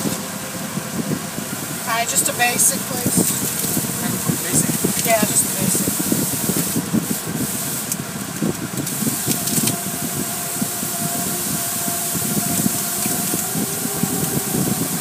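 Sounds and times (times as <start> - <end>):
pressure washer spray hiss: 1.6 - 8.2, 8.8 - 15.0.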